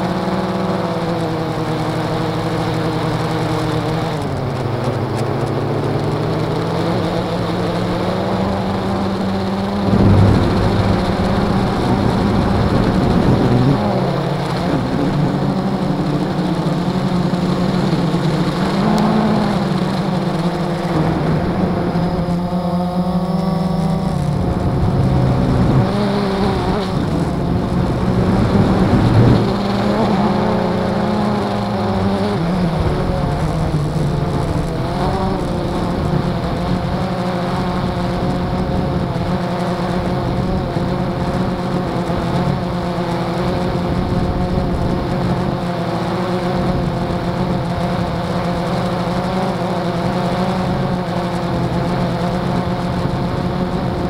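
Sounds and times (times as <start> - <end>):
quadcopter propellers buzzing: 0.0 - 54.0.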